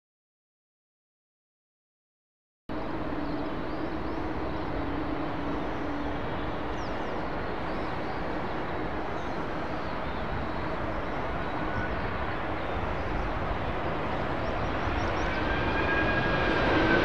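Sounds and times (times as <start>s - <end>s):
jet engines on approach: 2.7s - 17.0s.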